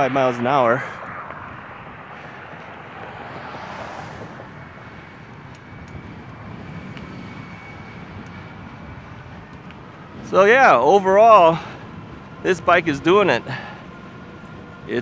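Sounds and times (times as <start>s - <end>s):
car passing at speed: 0.0s - 8.6s
background traffic rush: 0.0s - 15.0s.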